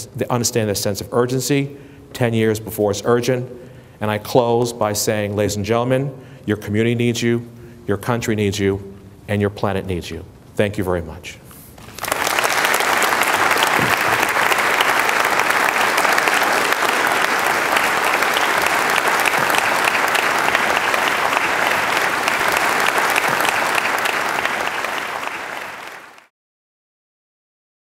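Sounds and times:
audience applauding: 0:11.8 - 0:26.3.

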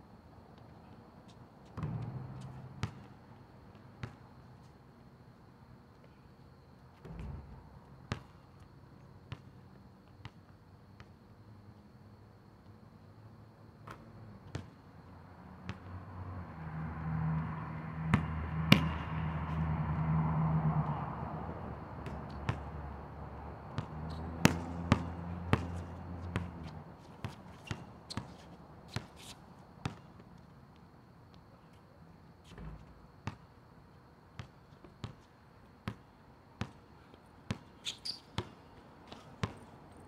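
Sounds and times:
basketball bouncing on asphalt: 0:01.6 - 0:04.7, 0:06.9 - 0:11.2, 0:13.8 - 0:14.8, 0:15.6 - 0:16.0, 0:18.0 - 0:20.2, 0:21.8 - 0:29.2, 0:29.8 - 0:31.5, 0:32.5 - 0:33.5, 0:34.4 - 0:39.8.

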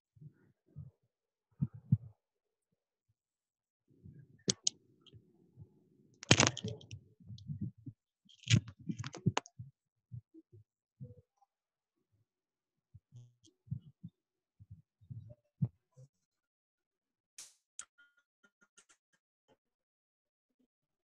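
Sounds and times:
mouse and keyboard clicks: 0:04.5 - 0:04.7, 0:06.2 - 0:07.0, 0:08.3 - 0:09.5.

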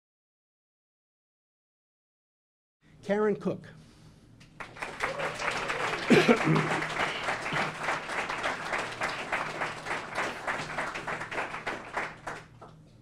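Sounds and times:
audience applauding: 0:04.6 - 0:12.7.

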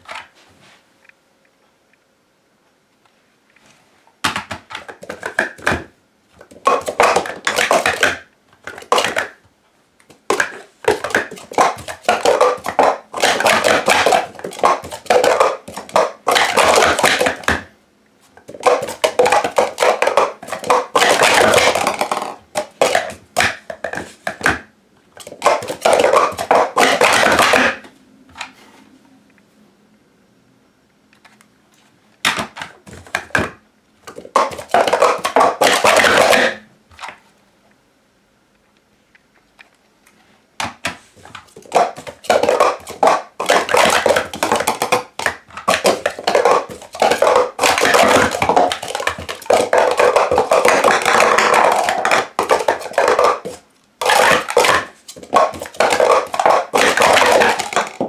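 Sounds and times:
plastic cups clattering: 0:04.3 - 0:09.4, 0:10.1 - 0:17.7, 0:18.4 - 0:27.9, 0:32.3 - 0:37.2, 0:40.6 - 0:58.0.

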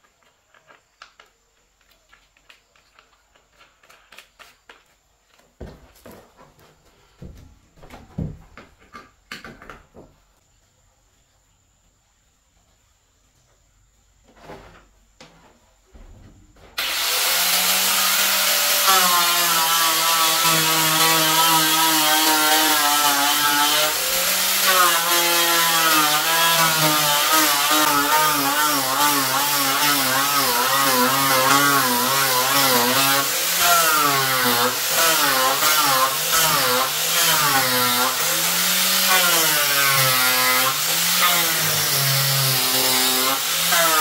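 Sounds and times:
angle grinder sanding wood: 0:16.8 - 0:44.0.

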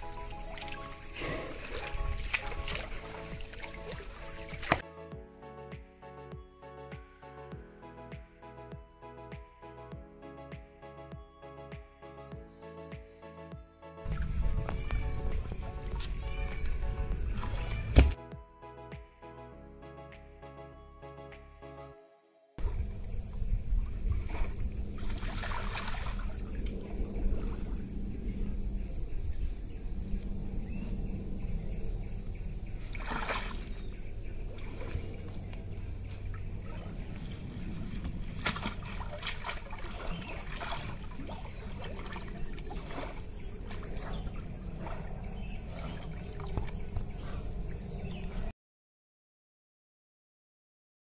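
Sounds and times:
water sloshing and splashing: 0:00.0 - 0:04.8, 0:14.1 - 0:18.2, 0:23.8 - 0:27.9, 0:32.6 - 0:47.4.

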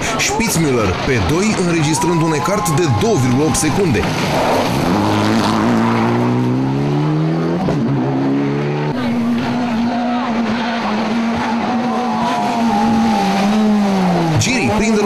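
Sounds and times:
rally car engine at high revs: 0:03.4 - 0:15.0.

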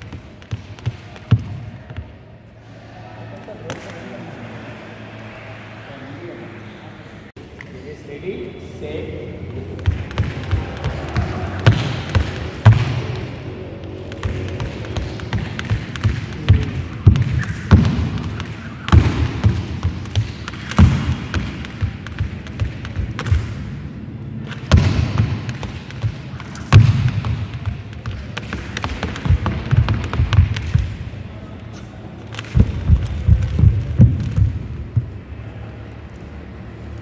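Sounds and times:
skipping rope slapping floor: 0:00.0 - 0:01.6, 0:09.7 - 0:23.6, 0:24.4 - 0:31.1, 0:32.3 - 0:35.1.

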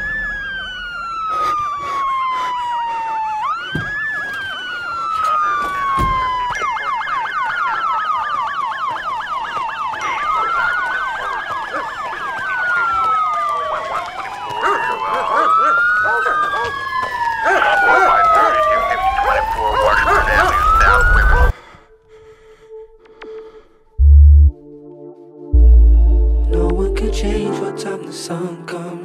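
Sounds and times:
police siren wailing: 0:00.0 - 0:21.6
siren fast yelp: 0:00.0 - 0:21.6.

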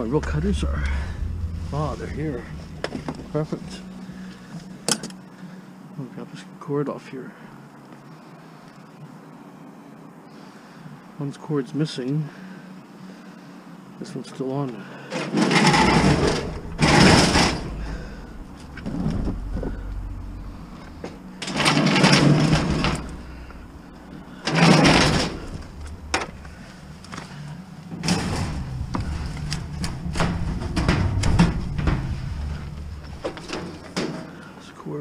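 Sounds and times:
metal stove scraping across floor: 0:00.0 - 0:04.8, 0:15.3 - 0:34.5.

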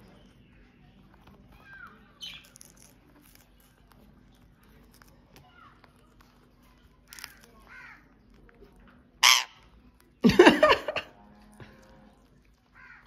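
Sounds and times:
softer parakeet calls: 0:09.2 - 0:09.7
parakeets screeching: 0:09.2 - 0:09.8.

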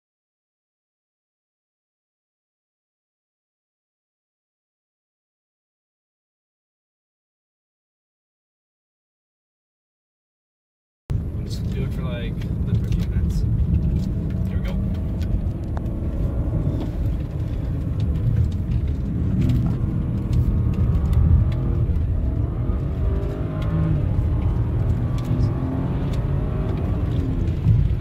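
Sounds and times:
car engine and road noise: 0:11.1 - 0:28.0.

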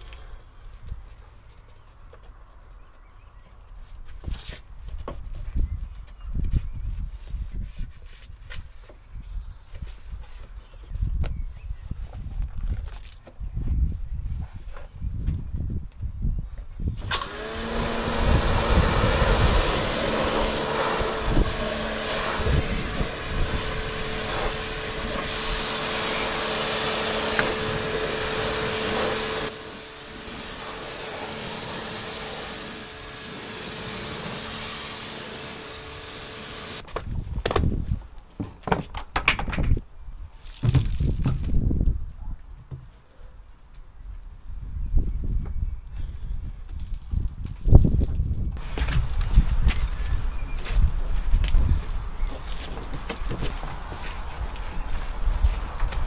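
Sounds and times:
electric motor humming: 0:17.0 - 0:36.8
loud hiss: 0:17.0 - 0:36.8.

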